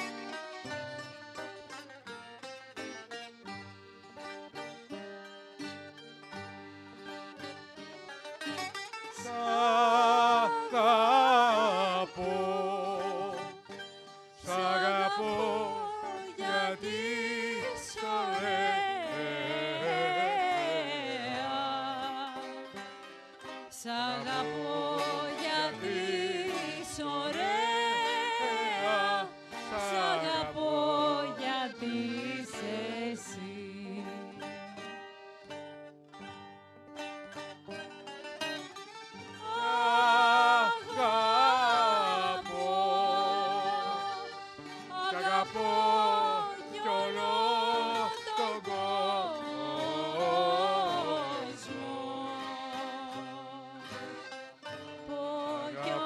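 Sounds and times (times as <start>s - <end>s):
plucked string instrument music: 0.0s - 56.0s.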